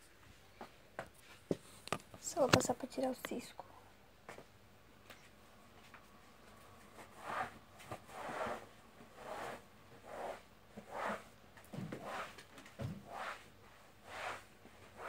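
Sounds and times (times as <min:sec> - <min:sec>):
squeegee swishing on floor: 0:06.8 - 0:15.0.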